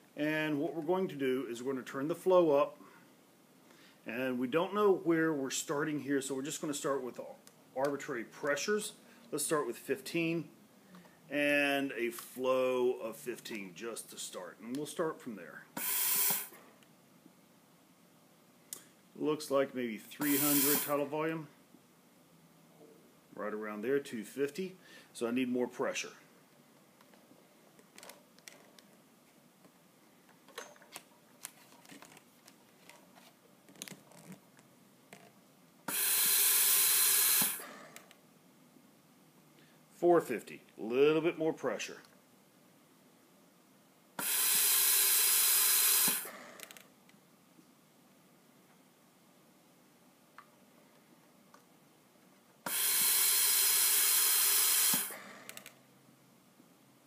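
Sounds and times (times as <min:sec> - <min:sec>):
respirator gas hiss: 0:15.7 - 0:16.8, 0:20.1 - 0:21.2, 0:35.9 - 0:38.2, 0:44.2 - 0:46.8, 0:52.6 - 0:55.7.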